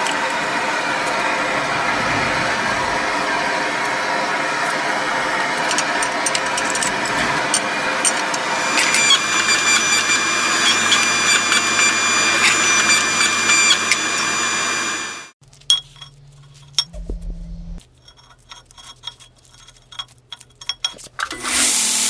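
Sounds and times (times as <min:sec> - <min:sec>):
low hum: 0:00.0 - 0:14.2, 0:15.7 - 0:18.2
electric motor and pump running: 0:00.0 - 0:15.4, 0:21.2 - 0:22.0
high whine: 0:00.0 - 0:15.4.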